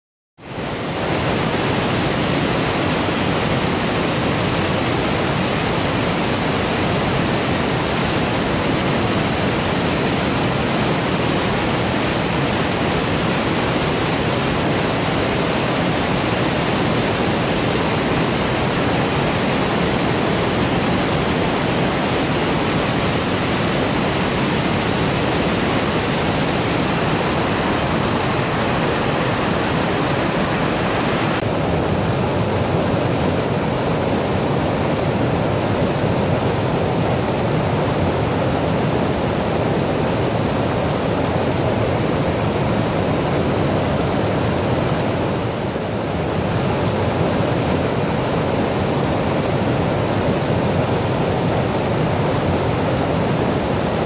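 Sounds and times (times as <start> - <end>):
waterfall rushing onto rocks: 0.6 - 31.7.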